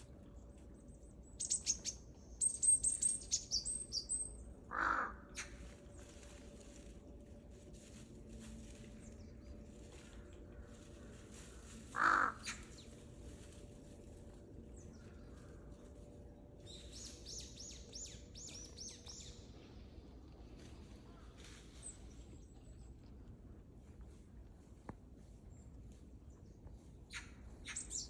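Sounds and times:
crow cawing: 0:04.7 - 0:05.5, 0:11.9 - 0:12.6.

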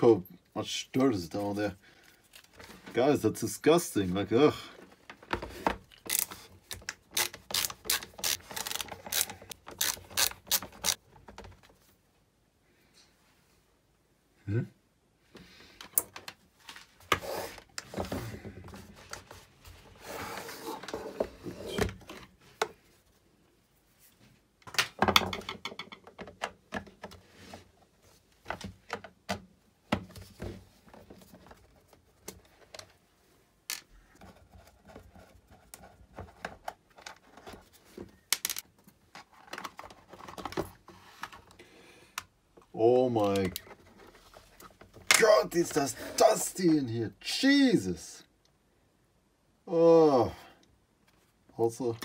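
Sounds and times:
screwdriver against plastic case: 0:06.1 - 0:11.0.

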